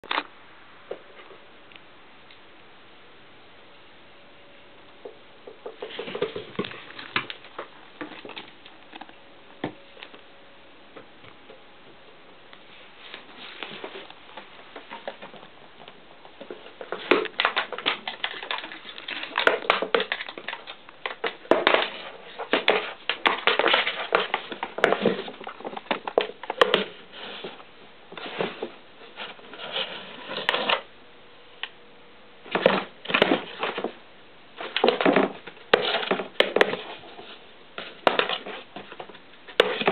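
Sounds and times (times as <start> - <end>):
cat clawing cardboard box: 34.6 - 39.9.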